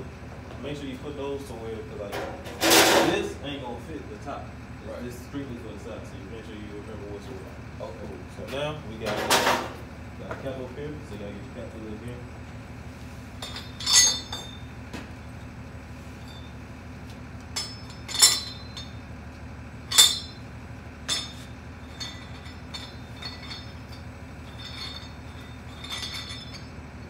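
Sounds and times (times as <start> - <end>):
steel tools clanking on metal: 2.1 - 3.2, 13.4 - 14.8, 16.2 - 16.6, 17.5 - 19.1, 19.8 - 27.0.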